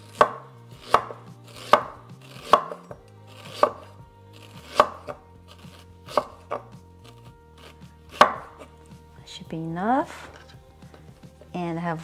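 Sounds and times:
knife chopping on wooden board: 0:00.1 - 0:08.7.

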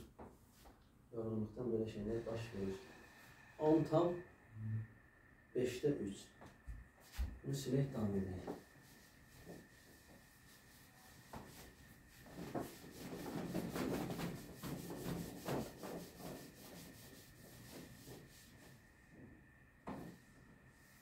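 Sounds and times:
eraser wiping whiteboard: 0:07.9 - 0:19.2, 0:19.9 - 0:21.0.

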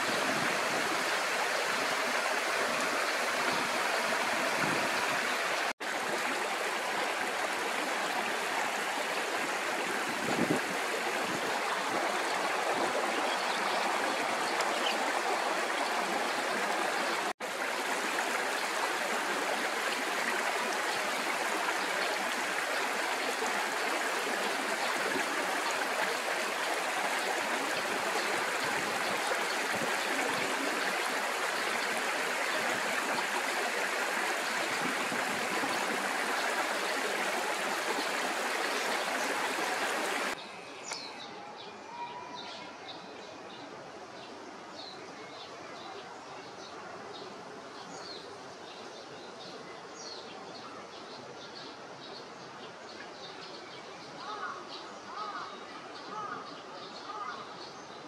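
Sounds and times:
running water rushing: 0:00.0 - 0:41.1.

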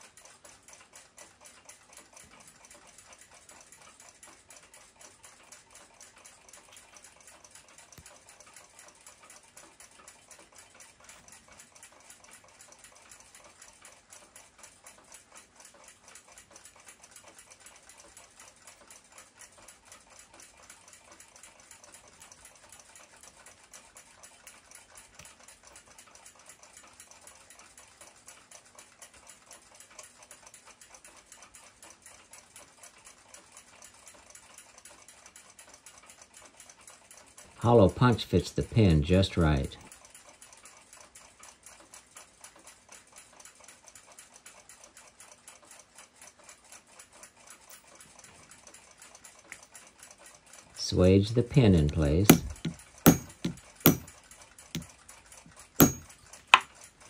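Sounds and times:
clock ticking: 0:51.6 - 0:54.1.

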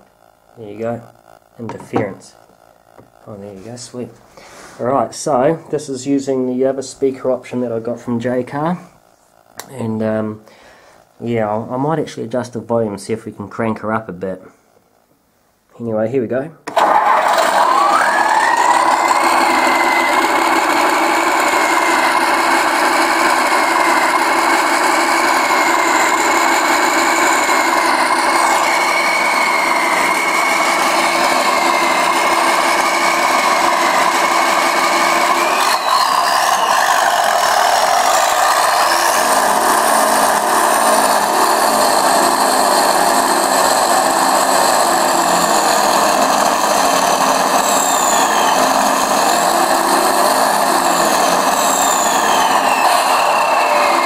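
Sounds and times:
simulated diesel truck engine: 0:16.7 - 0:54.0
wavering whistle: 0:17.7 - 0:22.5, 0:27.2 - 0:39.4, 0:47.4 - 0:54.0
short high whistles: 0:51.6 - 0:54.0.

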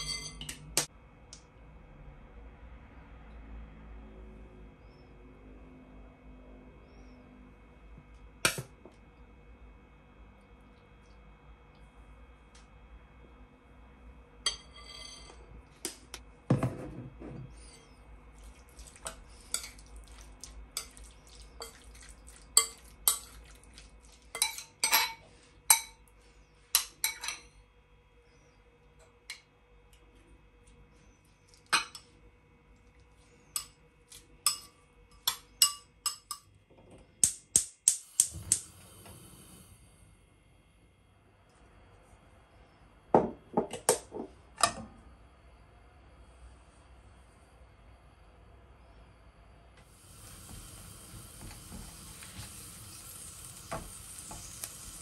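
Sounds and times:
dishes and utensils clinking: 0:00.0 - 0:00.8, 0:14.5 - 0:15.5, 0:20.8 - 0:23.5, 0:24.3 - 0:26.0, 0:26.8 - 0:27.6.

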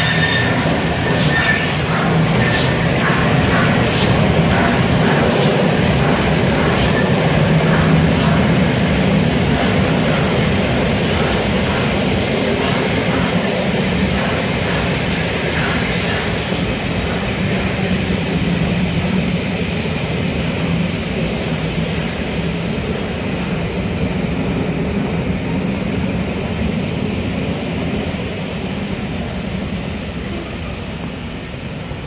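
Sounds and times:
train wheels rumbling on rails: 0:00.0 - 0:32.0.

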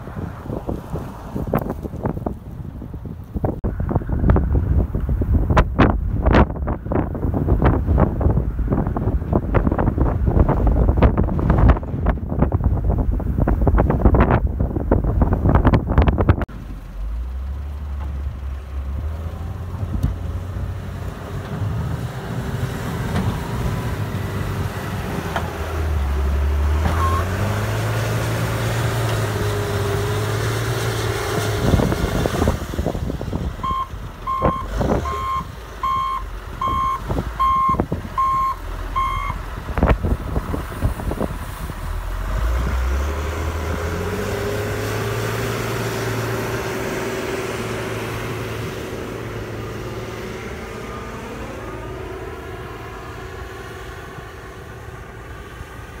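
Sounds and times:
diesel engine revving: 0:03.6 - 0:56.0
backup alarm beeping: 0:33.6 - 0:39.4.

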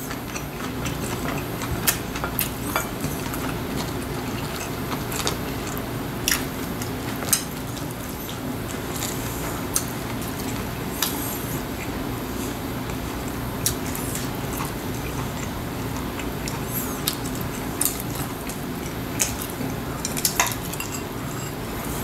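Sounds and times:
low background hum: 0:00.0 - 0:22.0.

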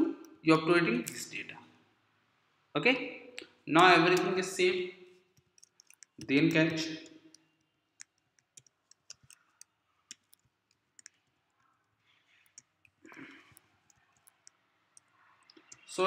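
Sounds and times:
computer keyboard keystrokes: 0:05.4 - 0:11.3.

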